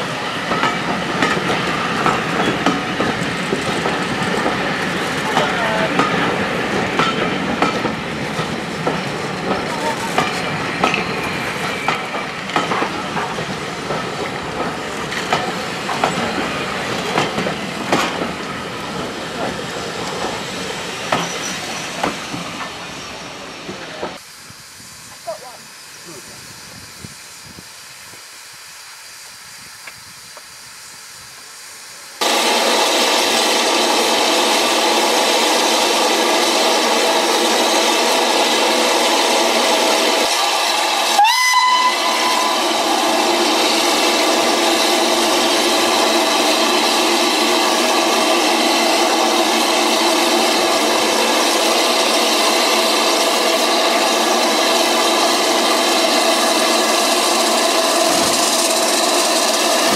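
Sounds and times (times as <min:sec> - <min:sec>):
steam locomotive hissing: 0:00.0 - 0:59.9
locomotive whistle blast: 0:41.1 - 0:42.8.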